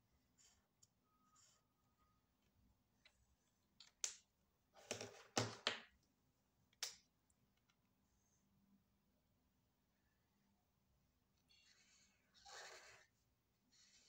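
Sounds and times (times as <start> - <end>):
plastic pen clicks and knocks: 3.8 - 5.9, 6.7 - 7.8.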